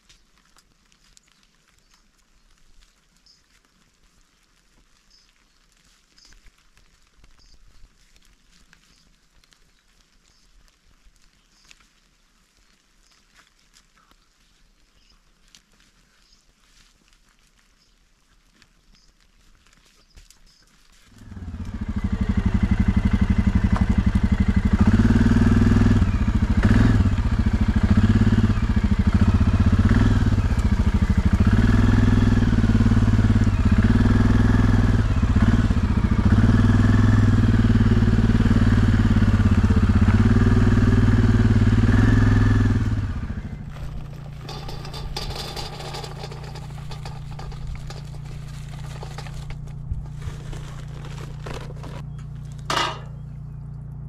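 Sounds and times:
small engine revving: 21.1s - 52.2s.

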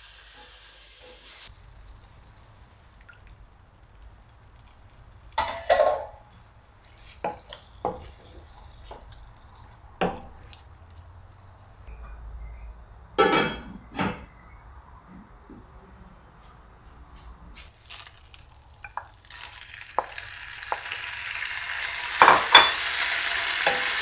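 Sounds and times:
wooden spatula scraping a pan: 5.7s - 10.7s.

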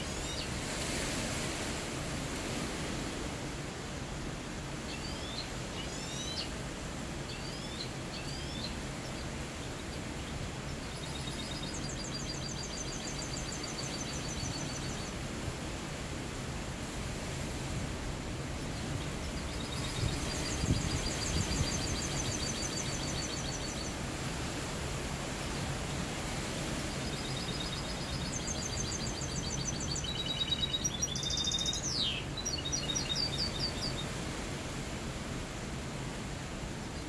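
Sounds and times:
finch singing trills: 27.0s - 34.1s.

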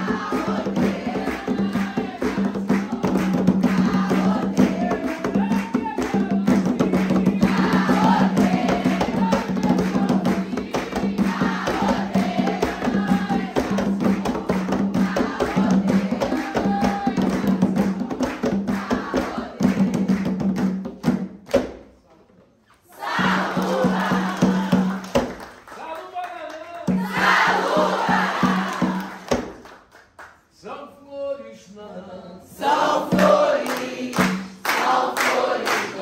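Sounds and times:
congregation singing a chant: 0.0s - 20.0s, 22.9s - 25.2s, 26.9s - 29.4s, 31.9s - 36.0s
drums beating: 0.0s - 21.8s, 23.0s - 25.6s, 26.8s - 29.7s, 32.6s - 36.0s
hand clapping: 0.2s - 12.8s, 13.6s - 21.8s, 23.6s - 27.4s, 28.4s - 30.4s, 33.2s - 36.0s.

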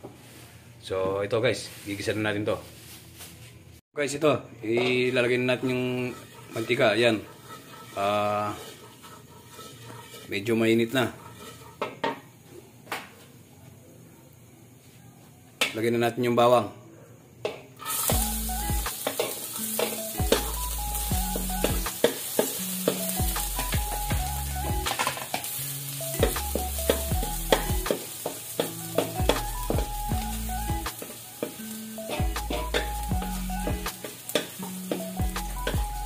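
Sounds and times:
utensil scraping pan: 4.7s - 12.2s, 17.8s - 24.1s, 26.2s - 36.0s
garlic sizzling in oil: 4.7s - 12.6s, 17.8s - 36.0s
background music with bass line: 18.1s - 19.0s, 20.1s - 21.9s, 23.0s - 24.9s, 26.0s - 27.9s, 28.7s - 30.9s, 31.9s - 34.0s, 34.7s - 36.0s.

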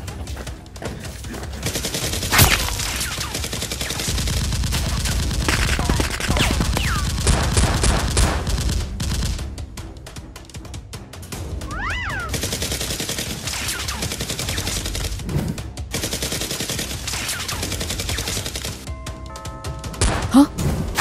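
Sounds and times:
automatic gunfire bursts: 1.6s - 9.4s, 12.3s - 15.2s, 15.9s - 18.8s
single loud gunshots: 2.3s - 3.1s.

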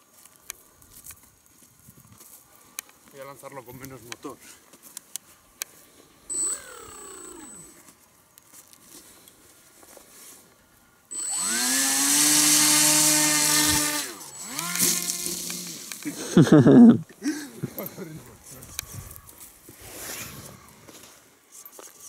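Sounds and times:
small electric motor whine: 6.3s - 7.9s, 11.1s - 16.2s.

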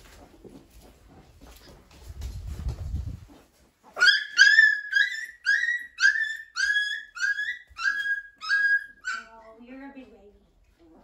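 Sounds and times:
puppy whining: 4.0s - 9.5s.

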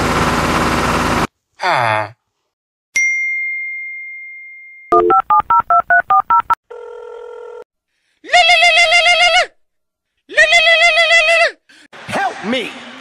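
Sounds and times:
keypad beeps: 4.9s - 6.6s
steady phone tone: 4.9s - 7.6s
warbling electronic phone ring: 4.9s - 7.6s.

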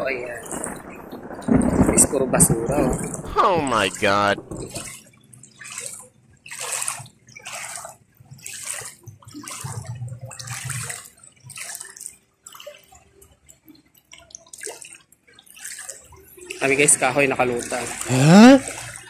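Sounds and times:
footsteps splashing through water: 5.6s - 12.6s.

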